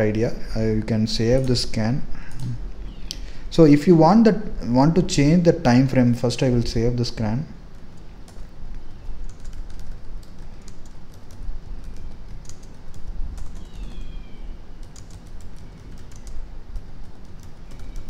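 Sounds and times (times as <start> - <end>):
low steady hum: 0.0 - 18.0
computer keyboard typing: 2.3 - 2.6, 7.7 - 8.5, 9.1 - 14.2, 14.8 - 18.0.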